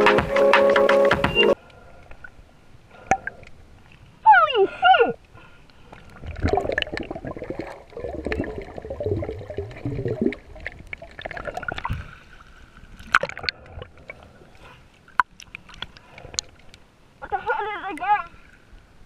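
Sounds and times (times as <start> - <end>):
muffled water sloshing and gurgling: 5.2 - 17.3.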